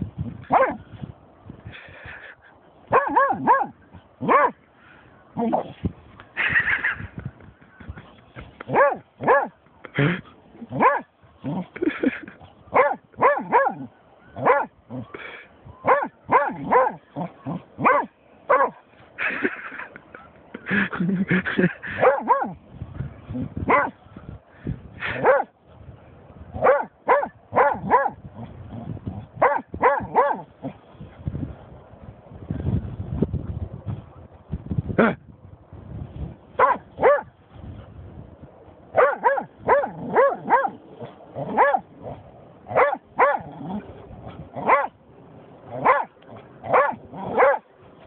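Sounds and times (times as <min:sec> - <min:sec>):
dog barking and yipping: 0:00.5 - 0:00.8, 0:02.9 - 0:04.6, 0:08.7 - 0:09.6, 0:10.7 - 0:11.6, 0:12.7 - 0:14.7, 0:15.8 - 0:18.8, 0:22.0 - 0:22.6, 0:23.7 - 0:24.0, 0:25.2 - 0:25.5, 0:26.6 - 0:28.2, 0:29.4 - 0:30.5, 0:36.6 - 0:37.3, 0:38.9 - 0:41.9, 0:42.7 - 0:43.5, 0:44.4 - 0:45.0, 0:45.7 - 0:47.7.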